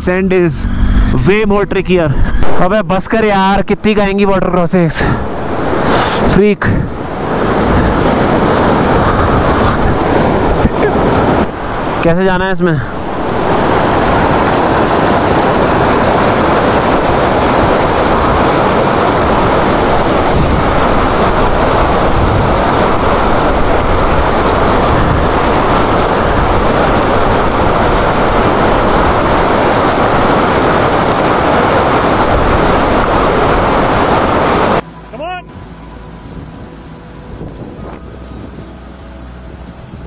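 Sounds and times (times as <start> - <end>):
stream rushing over rocks: 4.4 - 34.8.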